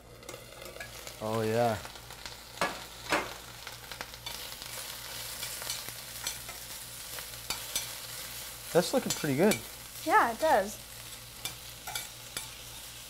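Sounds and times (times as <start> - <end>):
spinach sizzling in oil: 0.0 - 13.0
metal tongs clinking on pan: 0.2 - 1.1, 4.2 - 8.2, 8.9 - 9.8, 11.4 - 12.9.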